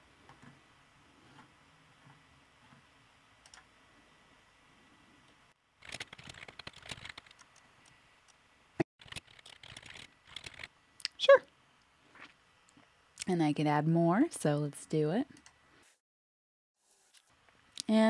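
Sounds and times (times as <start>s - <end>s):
typing on computer keyboard: 5.8s - 7.5s, 9.0s - 10.7s.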